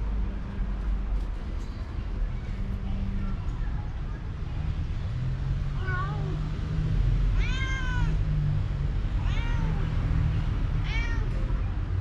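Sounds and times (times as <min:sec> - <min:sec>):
cat meowing: 0:07.4 - 0:08.2, 0:09.2 - 0:09.9, 0:10.8 - 0:11.3.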